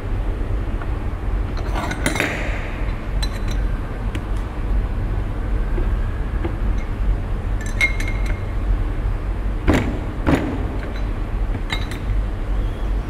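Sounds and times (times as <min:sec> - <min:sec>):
metal tool parts clinking: 0:03.2 - 0:03.6, 0:07.6 - 0:08.4.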